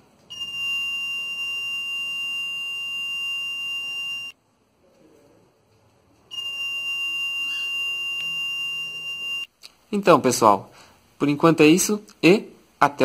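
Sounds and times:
high-pitched alarm buzzer: 0:00.3 - 0:04.4, 0:06.3 - 0:09.5.

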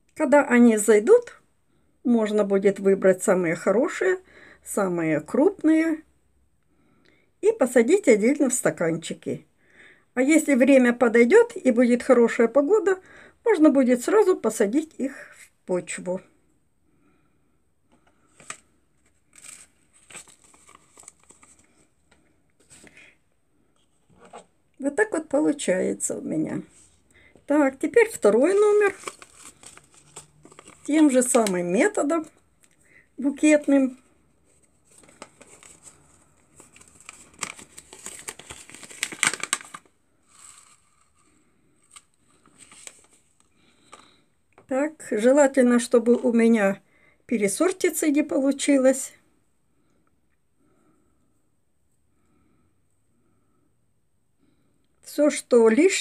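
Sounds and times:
paper seed packet crinkling: 0:18.2 - 0:21.9, 0:27.9 - 0:32.4, 0:33.3 - 0:44.2.

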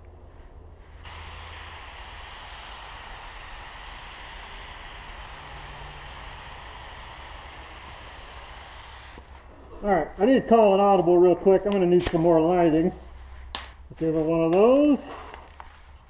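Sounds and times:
paint spray gun hissing: 0:01.0 - 0:09.3.

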